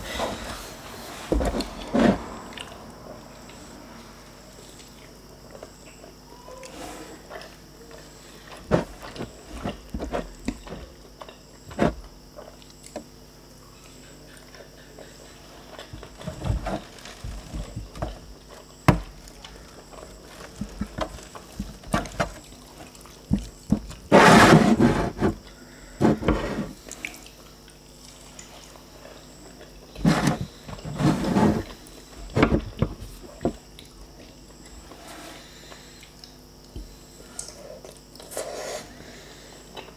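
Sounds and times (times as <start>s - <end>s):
flatbread being chewed: 4.6s - 24.4s, 25.3s - 39.9s.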